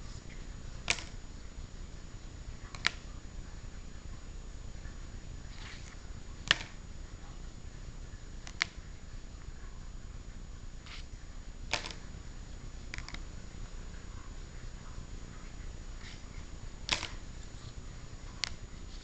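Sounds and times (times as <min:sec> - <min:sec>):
low background hum: 0:00.0 - 0:19.0
plastic card holders clicking: 0:00.9 - 0:01.2, 0:11.7 - 0:12.0, 0:16.9 - 0:17.2.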